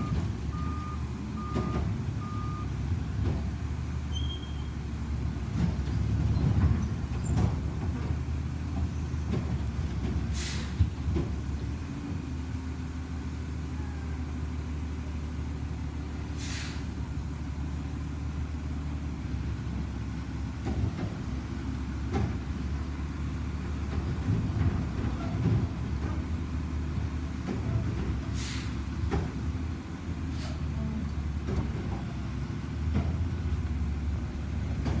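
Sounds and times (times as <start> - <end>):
truck engine rumbling: 0.0 - 35.0
air brake hisses: 10.3 - 10.8, 16.3 - 17.0, 28.2 - 28.9, 30.3 - 30.7.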